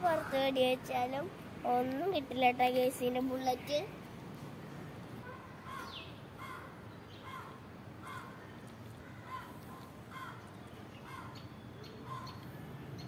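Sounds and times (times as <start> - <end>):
outdoor background noise: 0.0 - 13.0
crow cawing: 5.7 - 8.4, 9.0 - 10.4, 12.1 - 12.4.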